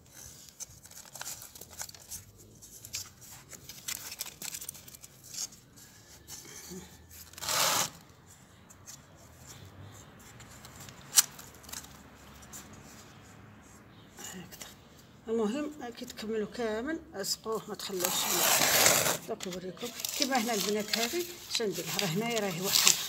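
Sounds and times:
rustling of plant in pot: 0:17.9 - 0:23.0.

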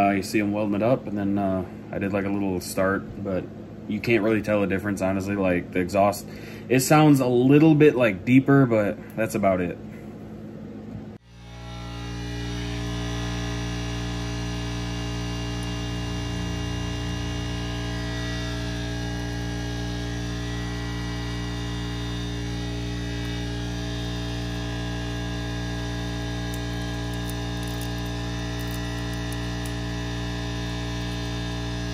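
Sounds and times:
steady electrical hum: 0:00.0 - 0:31.9.

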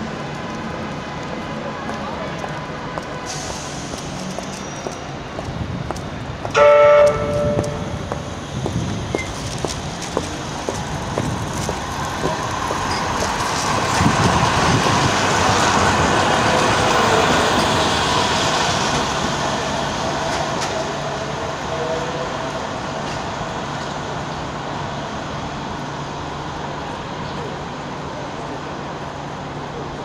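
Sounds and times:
tram passing: 0:00.0 - 0:30.0.

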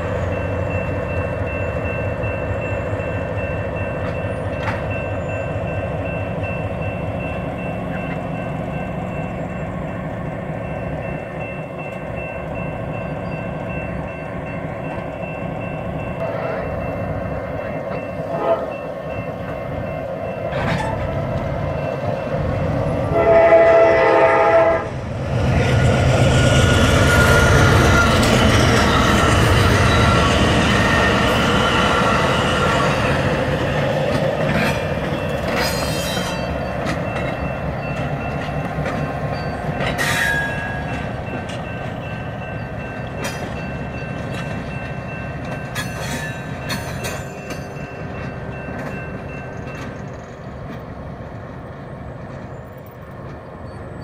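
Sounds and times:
locomotive rumbling past: 0:00.0 - 0:54.0
train clanks: 0:00.0 - 0:54.0
train squeal: 0:00.0 - 0:54.0
train horn: 0:18.2 - 0:18.8, 0:23.0 - 0:24.9.

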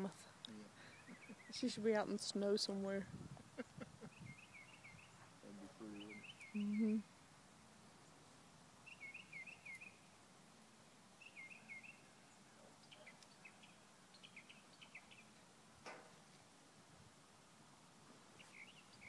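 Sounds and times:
songbird calls: 0:00.8 - 0:01.9, 0:03.4 - 0:07.1, 0:08.8 - 0:10.1, 0:11.2 - 0:15.4, 0:18.3 - 0:19.0.

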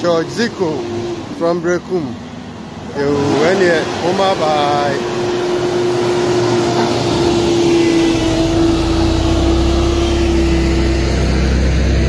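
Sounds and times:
diesel engine running: 0:00.0 - 0:12.0
steady whine: 0:00.0 - 0:12.0
deep steady rumble: 0:01.8 - 0:12.0.

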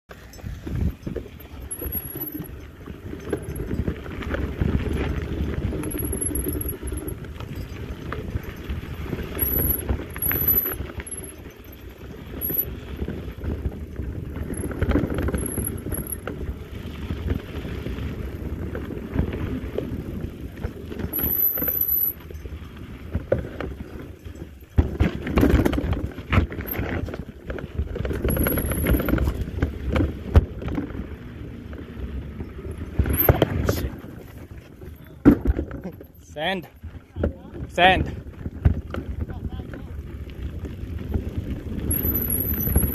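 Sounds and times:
bike rattling over bumps: 0:00.1 - 0:42.9.

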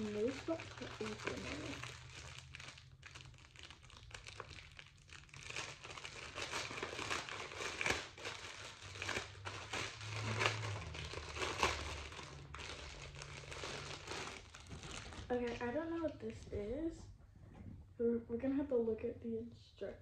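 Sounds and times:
plastic packaging crinkling: 0:00.0 - 0:16.4.

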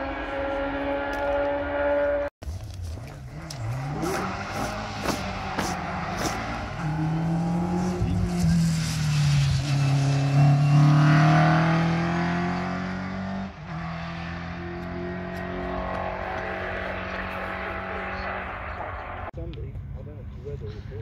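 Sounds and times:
racing car engine passing: 0:03.1 - 0:19.4.

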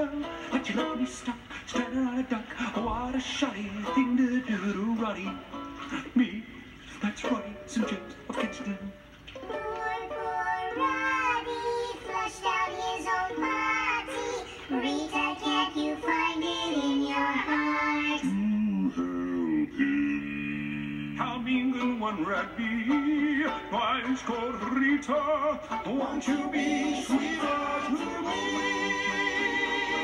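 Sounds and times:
backing music: 0:00.0 - 0:30.0
cartoon characters singing: 0:07.0 - 0:30.0
high chipmunk-like chorus: 0:25.8 - 0:30.0.

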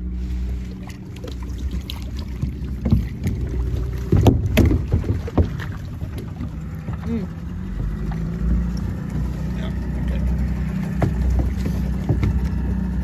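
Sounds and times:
outboard motor humming: 0:00.0 - 0:13.0
knocks and clatter: 0:02.4 - 0:08.2, 0:10.7 - 0:12.6.

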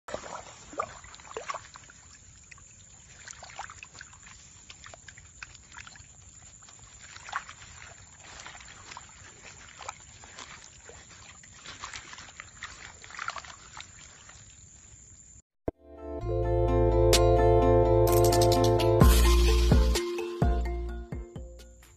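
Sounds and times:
wet net splashing: 0:00.0 - 0:15.0.

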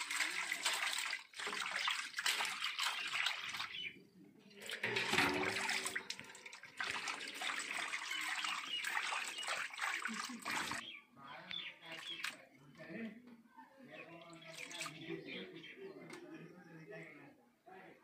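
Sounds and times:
water pouring and splashing: 0:00.0 - 0:10.8, 0:14.4 - 0:15.0.

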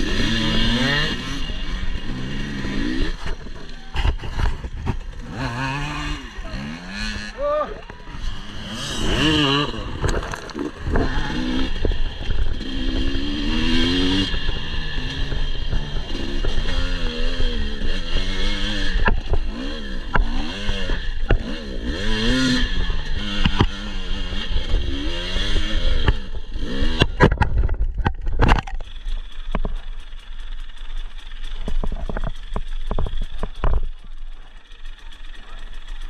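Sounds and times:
motorcycle engine revving: 0:00.0 - 0:36.0
sharp knocks and clatters: 0:26.9 - 0:34.6.

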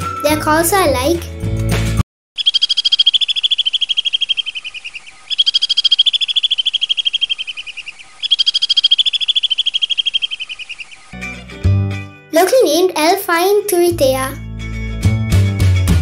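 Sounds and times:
swift chittering trills: 0:02.4 - 0:11.5.

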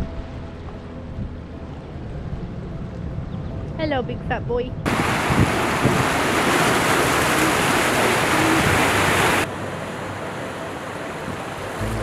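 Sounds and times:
surf washing over rocks: 0:04.9 - 0:12.0.

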